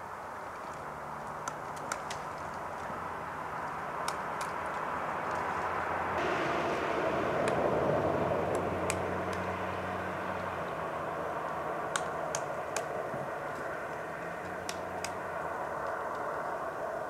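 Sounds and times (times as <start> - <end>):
road traffic rumble: 0.0 - 17.0
woodpecker tapping bark: 11.8 - 16.3.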